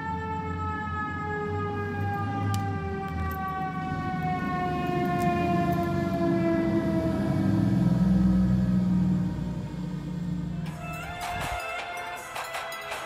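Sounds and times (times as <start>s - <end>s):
mechanical siren winding down: 0.0s - 10.0s
truck engine rumble: 0.1s - 13.0s.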